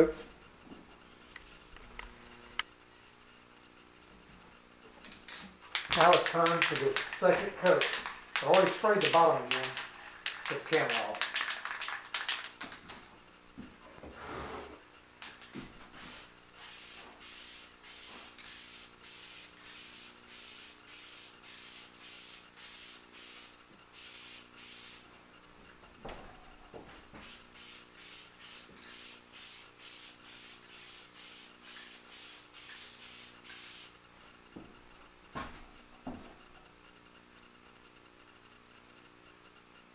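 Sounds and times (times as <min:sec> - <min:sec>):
aerosol can spraying hisses: 0:16.0 - 0:25.1, 0:27.2 - 0:33.9.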